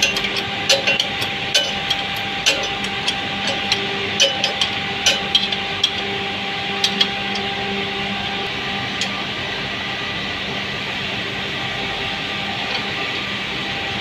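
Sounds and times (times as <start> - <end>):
spanner clinking on metal: 0.0 - 6.2, 6.8 - 7.6
machinery hum: 0.0 - 14.0.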